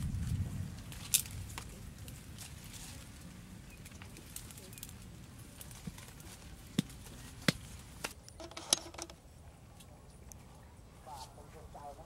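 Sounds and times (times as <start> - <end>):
wood fire crackling: 0.0 - 9.0.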